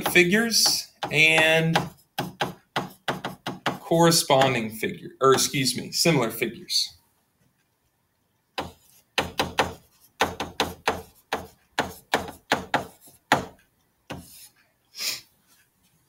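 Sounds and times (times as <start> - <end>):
stylus tapping on tablet screen: 0.0 - 4.6, 8.5 - 14.4.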